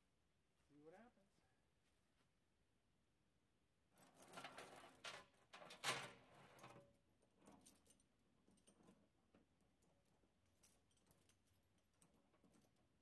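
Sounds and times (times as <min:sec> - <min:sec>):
steel chain clinking and jangling: 0:04.0 - 0:13.0.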